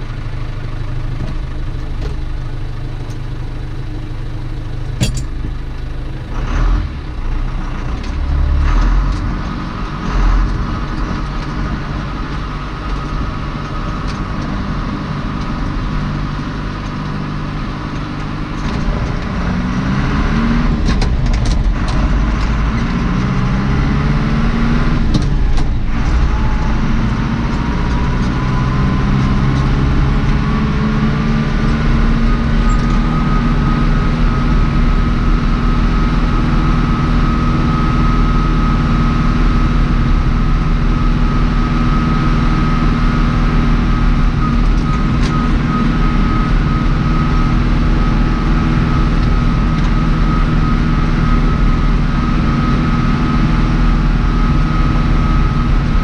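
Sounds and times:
tractor diesel engine running: 0.0 - 56.0
knocks and rattles: 5.0 - 5.7.

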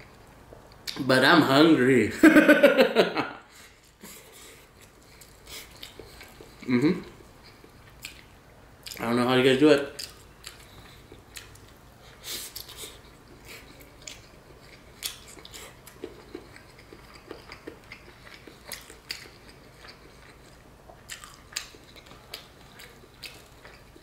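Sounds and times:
person chewing food: 3.6 - 9.1, 9.9 - 24.0
soft wet smacks and clicks: 5.7 - 9.0, 10.0 - 11.8.

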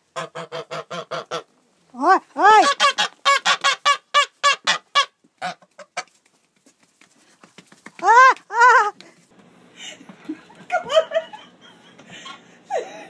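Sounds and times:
geese honking: 0.0 - 1.5, 2.6 - 6.1.

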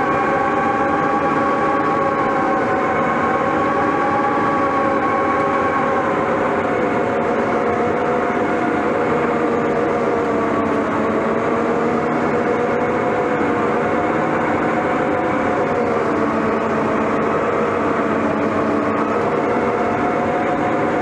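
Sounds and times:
bulldozer diesel engine running: 0.0 - 21.0.

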